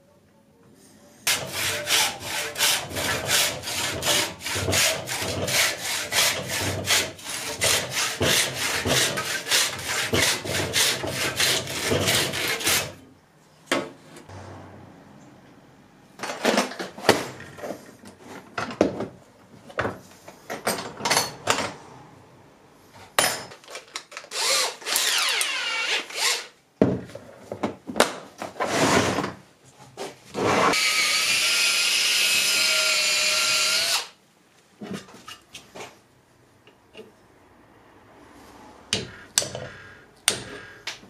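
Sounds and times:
cordless drill whirring: 24.3s - 26.5s
drill boring into wood: 24.3s - 26.5s, 30.8s - 34.2s.

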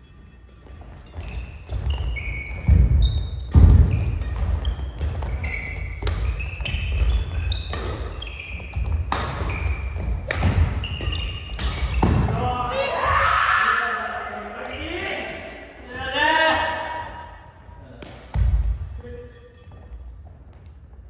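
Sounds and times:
shoes squeaking on gym floor: 0.4s - 12.4s, 14.6s - 15.4s, 18.4s - 21.0s
racket hitting shuttlecock: 1.1s - 12.4s.

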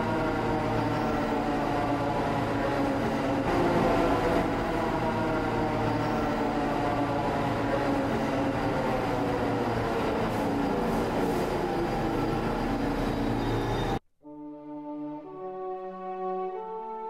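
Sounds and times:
subway train rumble: 0.0s - 14.0s
orchestral music with horns: 13.1s - 17.0s.

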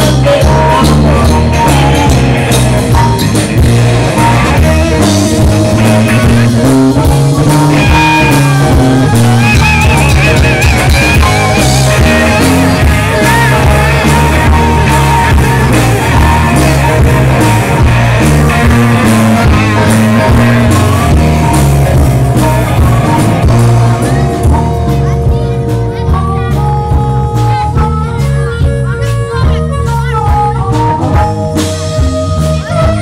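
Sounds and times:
blues-rock band playing: 0.0s - 33.0s
high wavering guitar lead: 0.0s - 33.0s.

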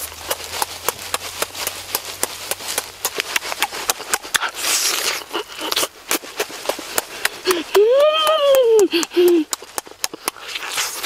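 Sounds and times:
wet chewing and lip-smacking: 0.0s - 11.0s
noisy bite into meat: 10.3s - 11.0s.

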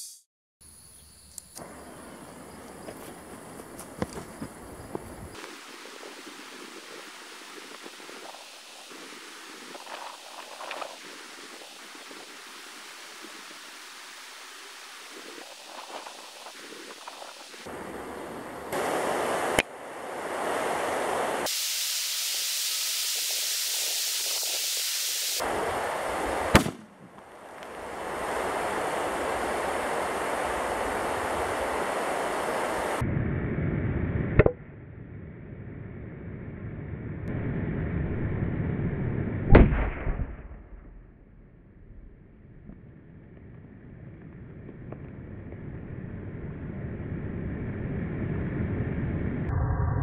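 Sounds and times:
torch flame hissing: 4.4s - 26.8s.

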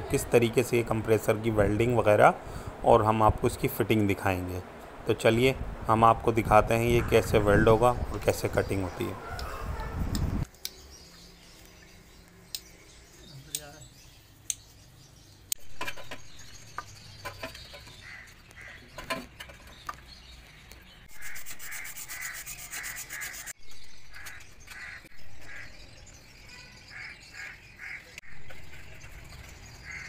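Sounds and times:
tool scraping copper pipe: 21.1s - 23.6s.

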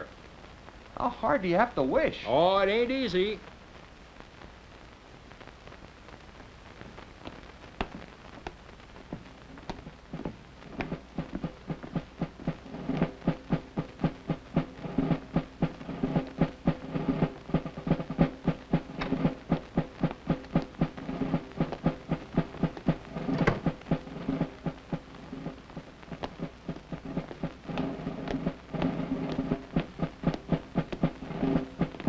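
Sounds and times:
marching drum beat: 9.8s - 32.0s.

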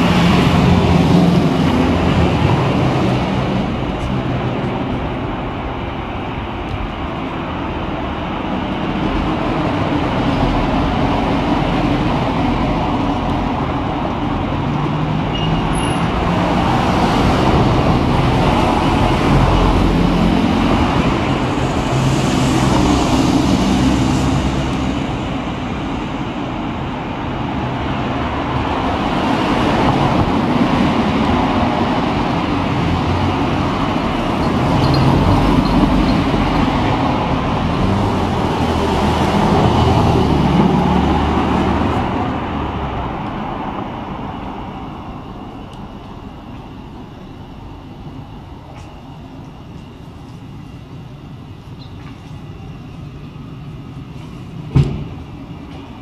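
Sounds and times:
cars and vans driving past: 0.0s - 56.0s.

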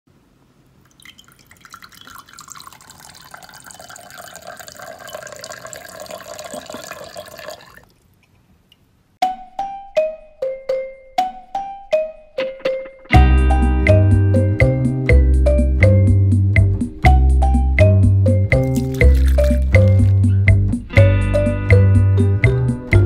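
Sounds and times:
soda pouring into glass: 0.9s - 7.9s, 18.6s - 20.2s
plucked melody: 9.2s - 23.0s.

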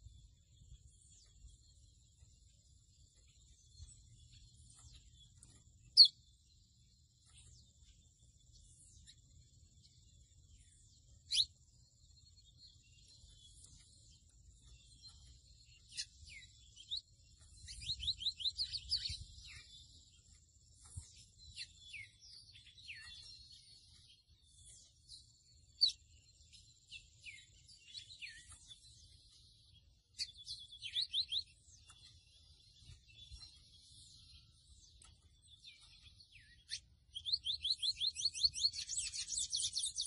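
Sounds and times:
bird singing whistles and trills: 0.0s - 40.0s.

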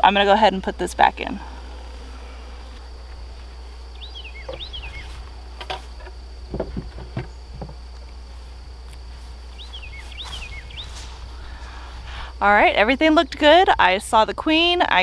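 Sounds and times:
steady low rumble: 0.0s - 15.0s
beehive box knocking: 4.4s - 7.9s.

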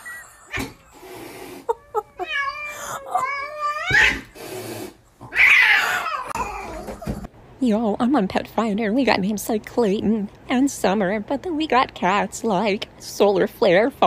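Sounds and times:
cat yowling: 1.7s - 4.4s, 5.2s - 7.2s.

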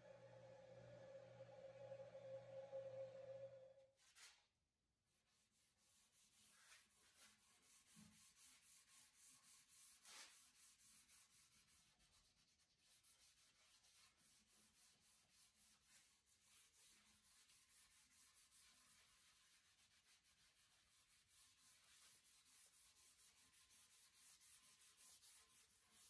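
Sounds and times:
sponge pad rubbing wood: 5.5s - 26.0s.

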